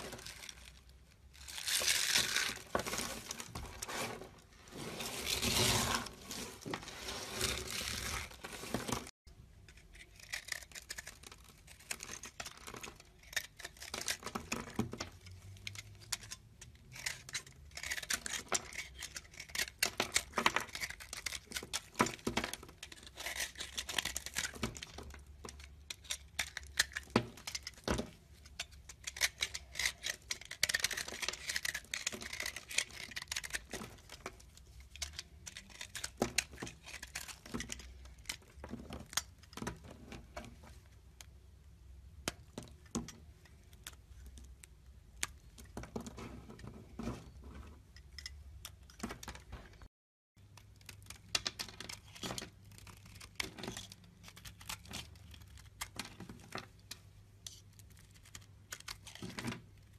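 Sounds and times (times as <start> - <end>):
knife scraping soap: 9.7 - 14.8, 15.7 - 39.7, 51.8 - 56.4.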